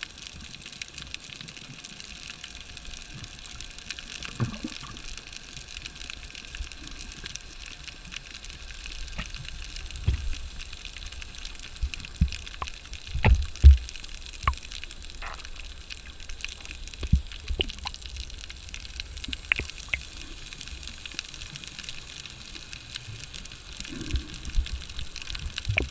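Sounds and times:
faint clicks: 0:00.4 - 0:25.9
underwater hiss: 0:02.2 - 0:25.9
muffled low thumps of water: 0:09.0 - 0:20.2, 0:24.2 - 0:25.9.

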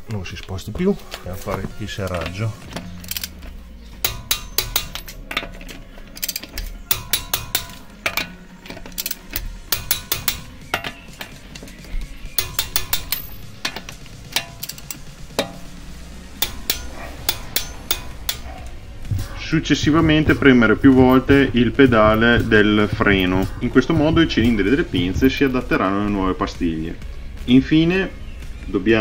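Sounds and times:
torque wrench ratchet clicking: 0:03.0 - 0:03.4, 0:04.0 - 0:05.5, 0:06.1 - 0:11.2, 0:12.4 - 0:15.6, 0:16.4 - 0:18.6.

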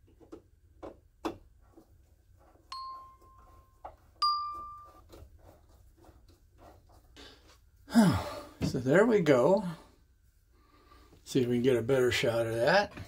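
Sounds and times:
bell-like dings: 0:02.7 - 0:05.0.

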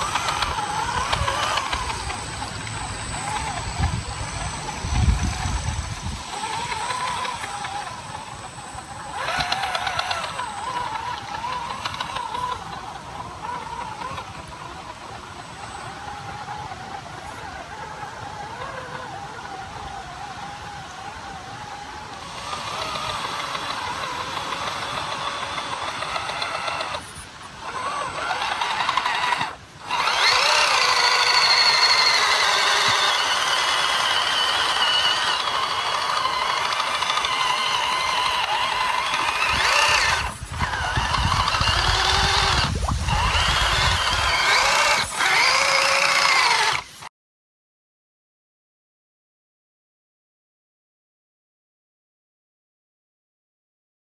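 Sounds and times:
electric motor and gears whining: 0:00.0 - 0:47.1.

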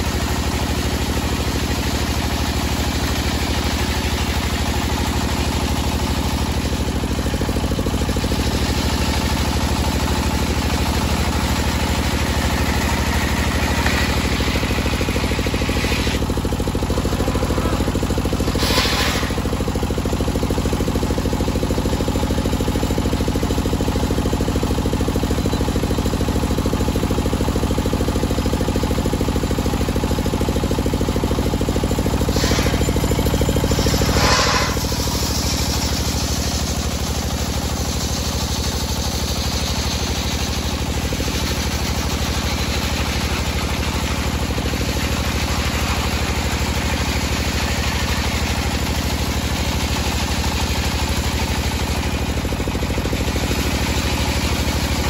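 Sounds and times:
engine drone: 0:00.0 - 0:55.0
circular saw ripping wood: 0:12.4 - 0:16.3, 0:17.1 - 0:19.6, 0:32.3 - 0:33.0, 0:33.6 - 0:35.8.

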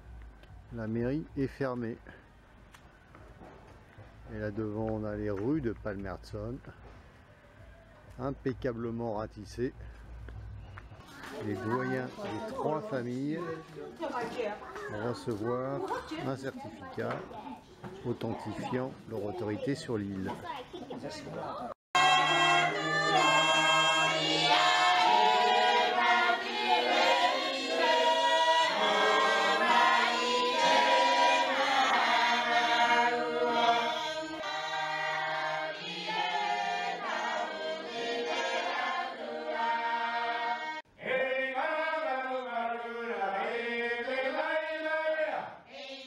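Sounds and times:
group singing unaccompanied: 0:22.0 - 0:46.0.

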